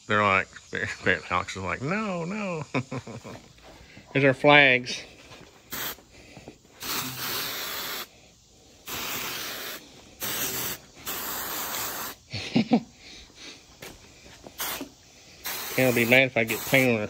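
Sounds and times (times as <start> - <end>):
spray-paint can spraying: 5.6 - 6.1, 6.7 - 12.3, 13.8 - 17.0.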